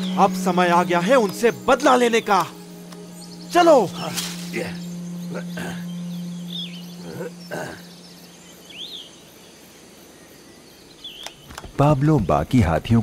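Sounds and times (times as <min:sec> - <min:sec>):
low hum: 0:00.0 - 0:09.4
bird chirps: 0:00.0 - 0:13.0
insects chirping: 0:00.0 - 0:13.0.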